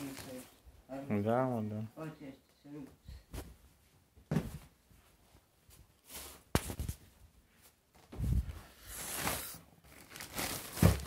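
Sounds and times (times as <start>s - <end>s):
plastic bags rustling: 0.0s - 0.6s, 8.9s - 11.0s.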